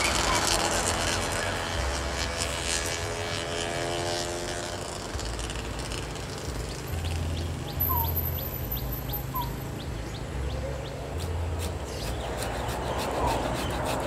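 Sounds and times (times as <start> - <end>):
passing engine: 0.0 - 14.0
birds chirping: 6.5 - 14.0.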